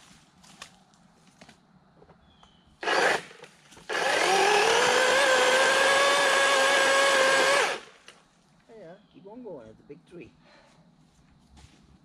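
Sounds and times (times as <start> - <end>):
cordless chainsaw motor whine: 2.8 - 7.9.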